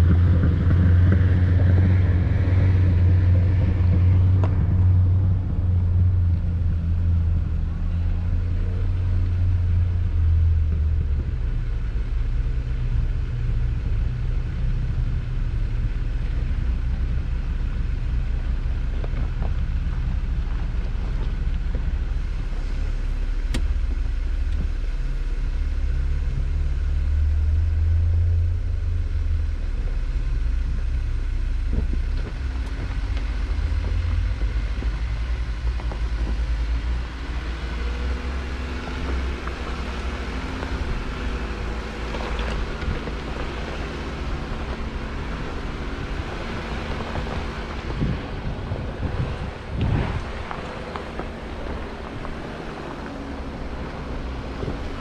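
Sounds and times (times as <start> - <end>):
vehicle engine rumbling: 0.0 - 55.0.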